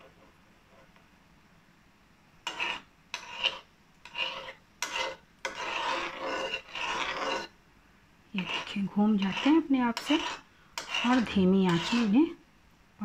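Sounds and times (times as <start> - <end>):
metal spoon scraping steel pan: 2.4 - 7.6, 8.4 - 12.4.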